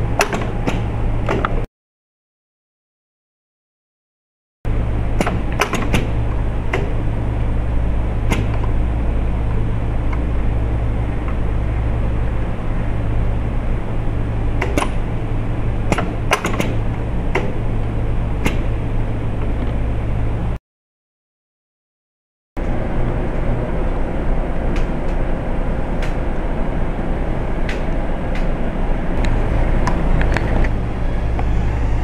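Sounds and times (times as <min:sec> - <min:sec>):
machine humming: 0:00.0 - 0:01.7, 0:04.7 - 0:20.6, 0:22.6 - 0:32.0
pneumatic actuator clicks: 0:00.2 - 0:01.6, 0:05.2 - 0:07.0, 0:08.3 - 0:08.7, 0:14.6 - 0:15.0, 0:15.9 - 0:17.6.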